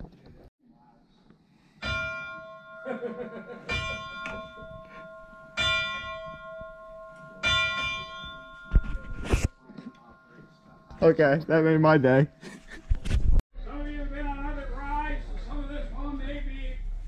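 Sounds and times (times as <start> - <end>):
locomotive bell ringing: 1.8 - 12.6.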